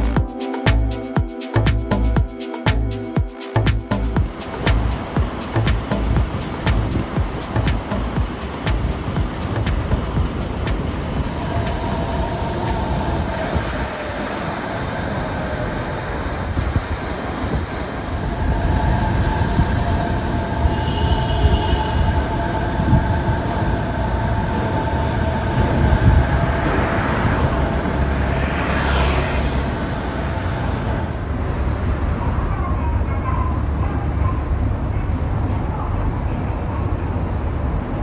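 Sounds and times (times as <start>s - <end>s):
monorail train electric whine: 2.4s - 32.2s.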